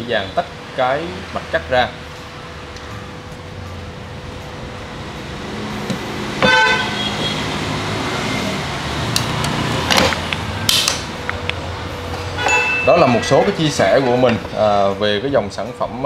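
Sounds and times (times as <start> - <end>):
passing road traffic: 0.0 - 16.0
vehicle horn toot: 6.4 - 7.6, 12.4 - 13.2.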